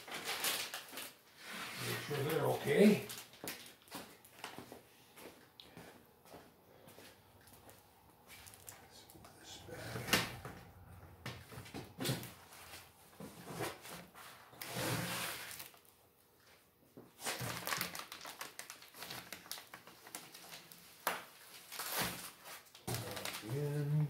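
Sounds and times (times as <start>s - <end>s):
plastic bag crinkling: 0.0s - 4.6s, 8.3s - 9.2s, 15.2s - 15.9s, 17.2s - 23.9s.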